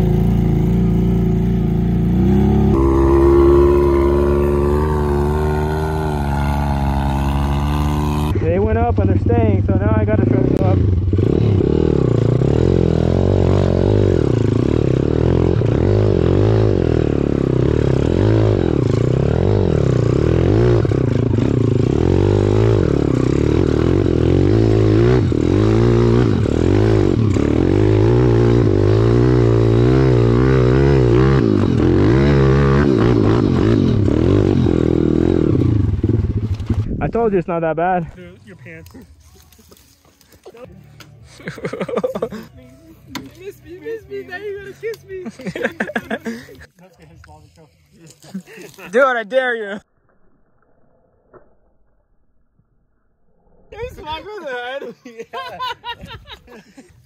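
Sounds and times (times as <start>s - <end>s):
motorbike engine revving: 0.0s - 37.0s.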